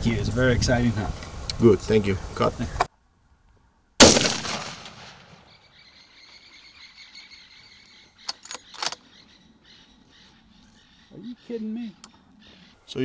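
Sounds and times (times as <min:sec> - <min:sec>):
sudden loud burst: 0:04.0 - 0:05.4
sharp clicks: 0:08.2 - 0:09.0.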